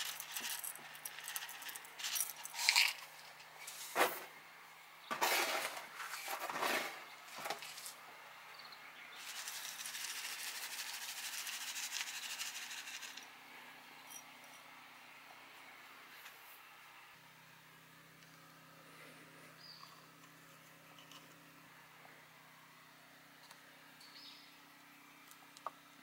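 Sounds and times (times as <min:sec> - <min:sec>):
soil grains pouring into pot: 0:00.0 - 0:03.9, 0:09.2 - 0:13.3.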